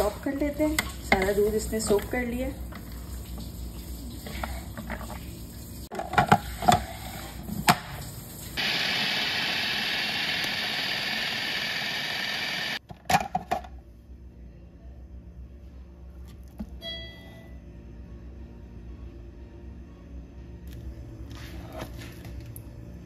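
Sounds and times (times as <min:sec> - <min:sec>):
electric food chopper motor: 0:08.6 - 0:12.8.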